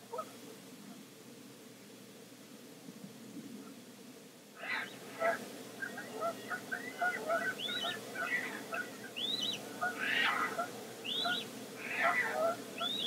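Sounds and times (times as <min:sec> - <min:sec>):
harsh rasping bird call: 0:04.6 - 0:13.0
terns calling with short notes: 0:04.6 - 0:13.0
juvenile tern whistling: 0:07.5 - 0:08.5, 0:09.2 - 0:10.4, 0:11.0 - 0:12.2, 0:12.8 - 0:13.0.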